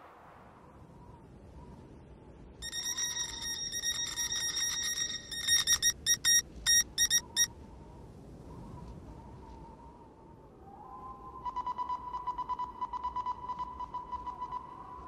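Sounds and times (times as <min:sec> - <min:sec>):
high electronic beeps: 0:02.6 - 0:07.5.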